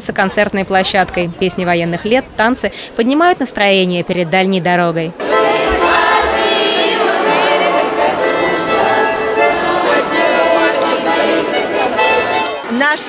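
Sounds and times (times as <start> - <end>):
group of voices singing: 5.2 - 12.6
musical accompaniment: 5.2 - 13.0.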